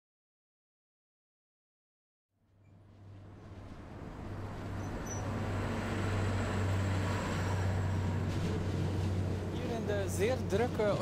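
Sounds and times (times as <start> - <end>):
city street traffic hum: 2.5 - 11.0.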